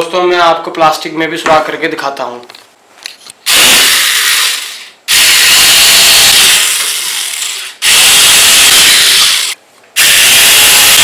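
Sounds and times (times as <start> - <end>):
drill boring into plastic: 3.5 - 11.0.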